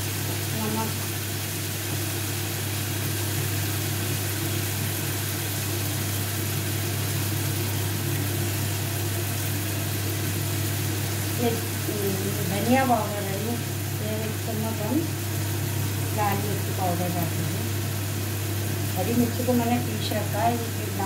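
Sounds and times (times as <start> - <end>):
food frying hiss: 0.0 - 21.0.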